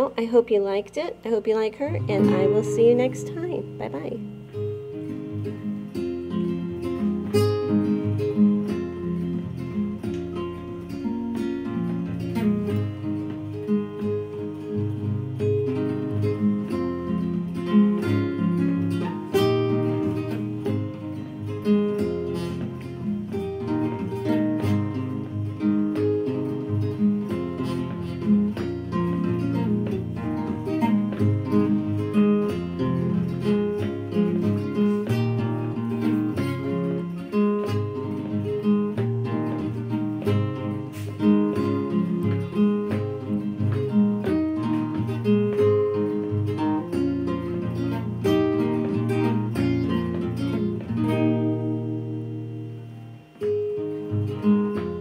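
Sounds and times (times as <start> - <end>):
acoustic guitar playing: 0.0 - 55.0.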